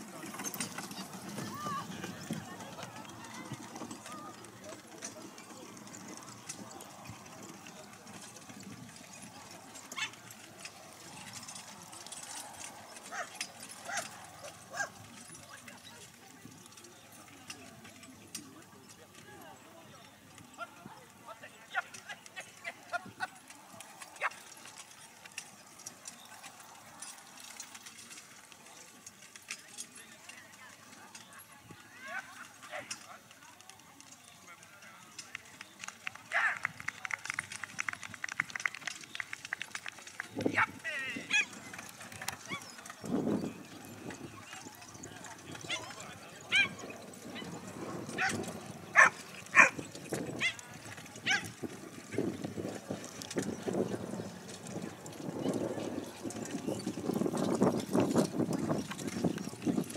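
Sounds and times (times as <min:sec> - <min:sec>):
carriage clatter: 0:00.0 - 0:19.4, 0:21.6 - 0:59.9
horse hooves: 0:00.0 - 0:59.9.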